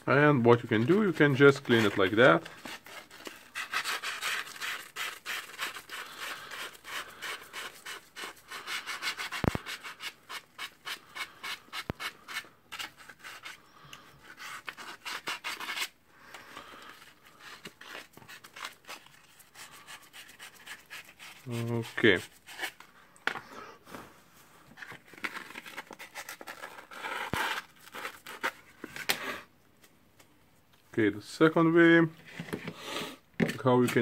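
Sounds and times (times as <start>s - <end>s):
sandpaper rasping on metal: 3.5s - 12.4s.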